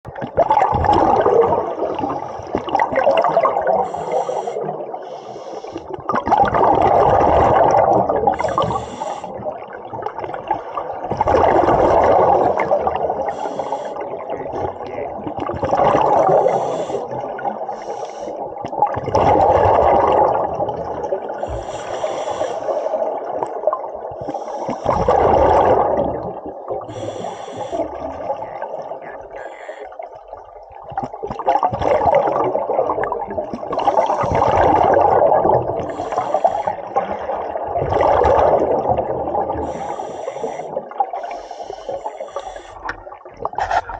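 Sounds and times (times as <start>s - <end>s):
rush of bubbles: 0.1s - 43.9s
regulator hiss on inhale: 3.8s - 6.0s, 8.4s - 9.4s, 13.2s - 14.1s, 16.3s - 18.4s, 21.4s - 23.1s, 24.2s - 25.0s, 26.9s - 28.0s, 29.4s - 30.0s, 35.9s - 37.0s, 39.6s - 43.0s.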